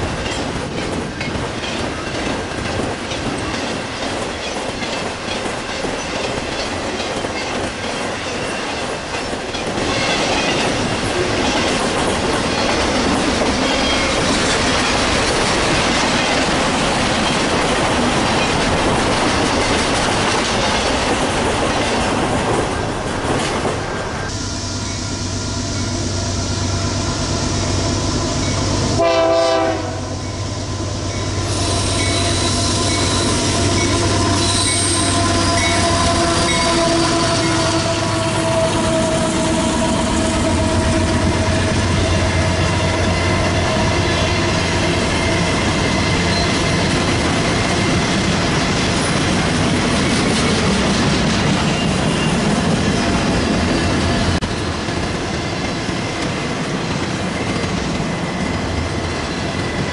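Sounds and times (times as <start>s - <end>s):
train wheels clicking over rail joints: 0.0s - 23.8s, 38.8s - 59.9s
train horn: 24.3s - 45.0s.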